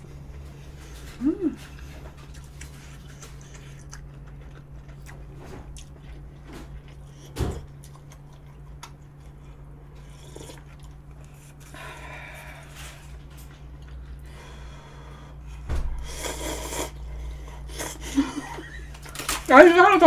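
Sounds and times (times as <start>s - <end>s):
thump: 15.7s - 16.0s
slurping noodles: 16.1s - 18.0s.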